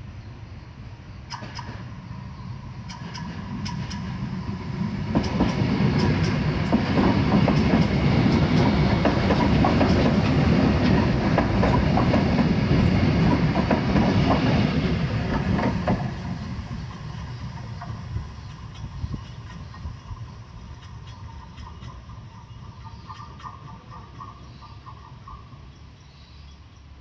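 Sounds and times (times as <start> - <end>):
train wheels rumbling on rails: 1.2 - 27.0
wheels clacking over rail joints: 2.8 - 20.1.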